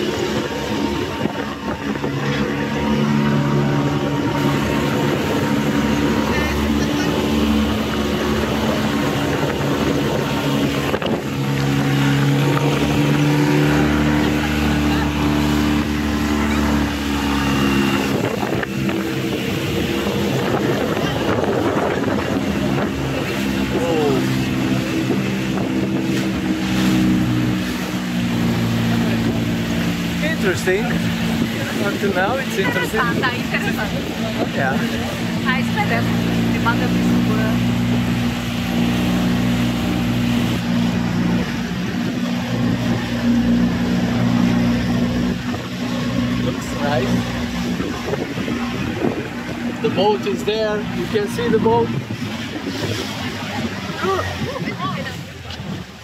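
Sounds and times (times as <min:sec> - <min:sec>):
boat motor humming: 0:00.0 - 0:56.0
broad rushing noise: 0:00.0 - 0:56.0.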